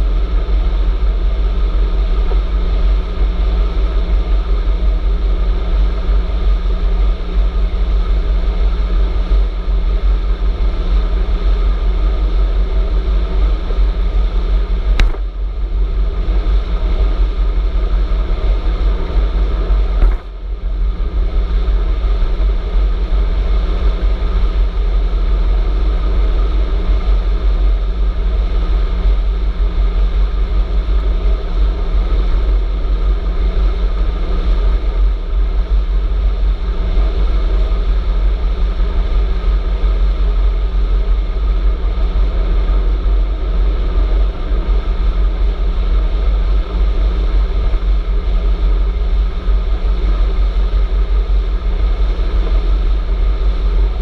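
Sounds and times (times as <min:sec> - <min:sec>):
sharp click: 0:15.0 - 0:15.3
tyre noise on asphalt: 0:15.0 - 0:15.3, 0:20.0 - 0:20.4.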